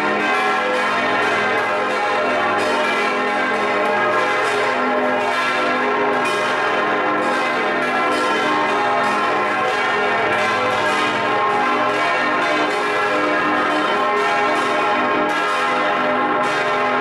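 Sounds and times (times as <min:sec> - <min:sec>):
church bells pealing: 0:00.0 - 0:17.0.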